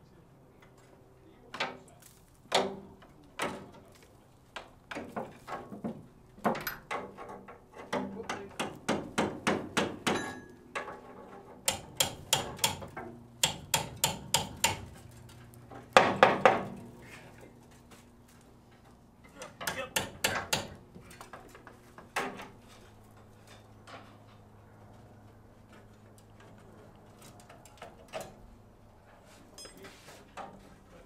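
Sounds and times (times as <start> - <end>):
hammer striking steel: 11.7 - 14.9, 19.6 - 20.8.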